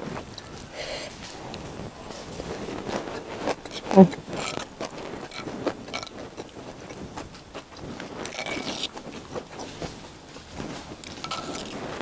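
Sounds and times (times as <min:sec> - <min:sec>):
crunchy chewing: 0:00.0 - 0:12.0
metal spoon scraping a dish: 0:08.2 - 0:08.9, 0:11.1 - 0:11.8.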